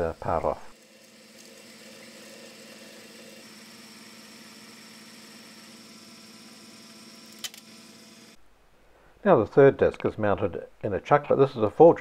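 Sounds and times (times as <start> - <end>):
metal lathe humming: 0.0 - 8.4.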